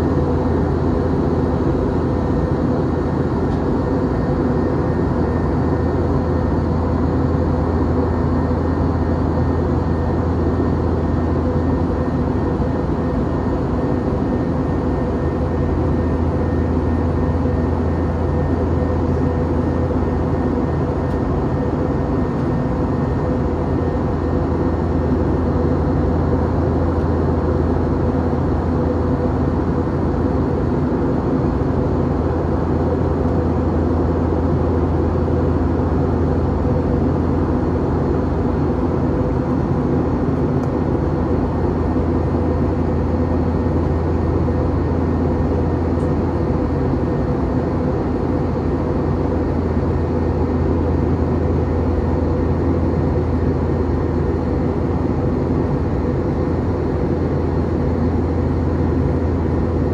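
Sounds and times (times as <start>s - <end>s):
airliner cabin engine drone: 0.0s - 59.9s.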